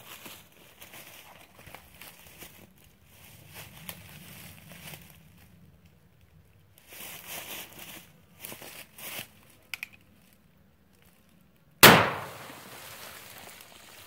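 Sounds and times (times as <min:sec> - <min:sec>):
rifle shot: 0:11.8 - 0:12.8.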